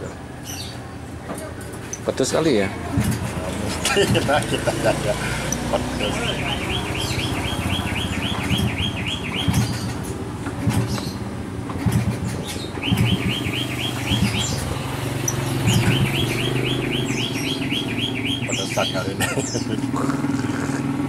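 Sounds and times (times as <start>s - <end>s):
caged bird chirping: 0.0s - 21.0s
high bird calls: 5.2s - 10.1s, 12.3s - 20.9s.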